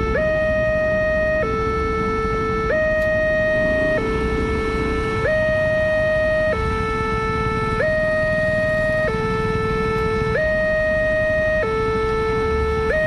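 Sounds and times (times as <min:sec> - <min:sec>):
level-crossing two-tone alarm: 0:00.0 - 0:13.0
steady low rumble: 0:02.0 - 0:07.6.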